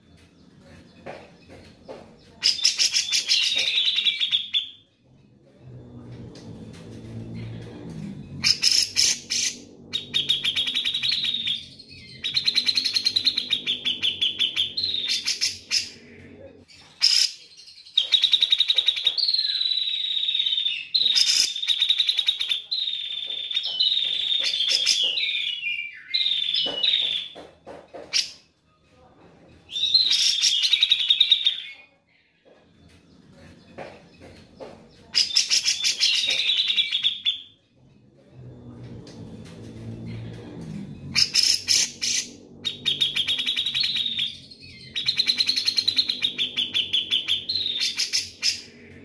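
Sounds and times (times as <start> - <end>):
bird chattering song: 1.0 - 4.8, 8.4 - 16.2, 17.0 - 27.4, 33.8 - 37.6, 41.1 - 49.0.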